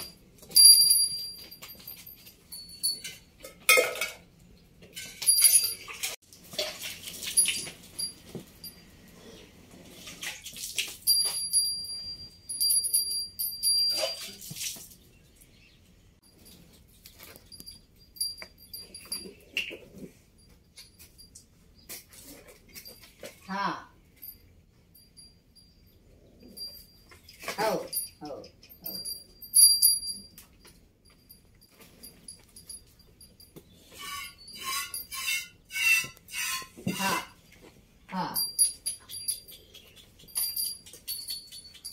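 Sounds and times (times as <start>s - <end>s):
high ringing chirps: 11.1s - 14.4s, 16.2s - 19.7s, 24.2s - 36.8s.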